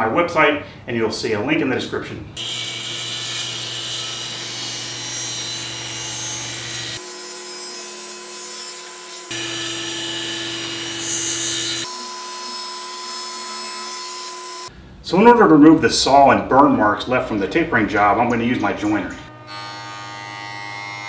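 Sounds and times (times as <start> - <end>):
table saw motor hum: 2.4 - 14.7, 19.3 - 21.0.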